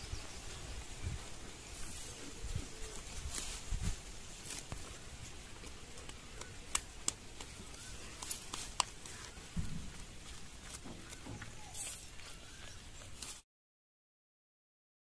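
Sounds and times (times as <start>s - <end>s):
soft rustling: 1.1s - 13.4s
goat chewing: 1.8s - 13.4s.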